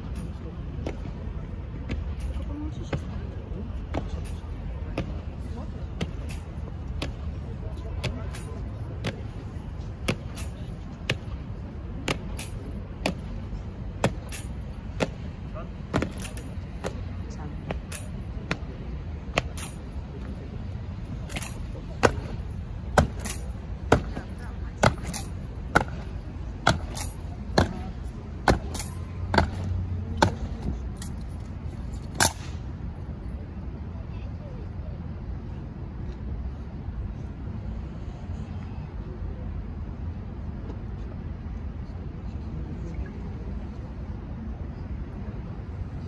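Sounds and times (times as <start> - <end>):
low steady rumble: 0.0 - 46.0.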